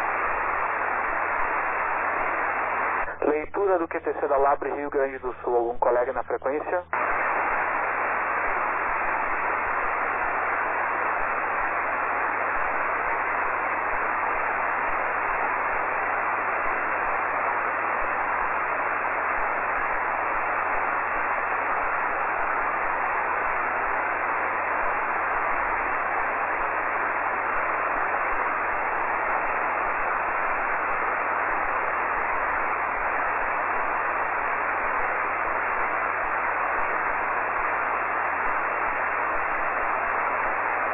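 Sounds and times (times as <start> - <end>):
radio static hiss: 0.0 - 40.9.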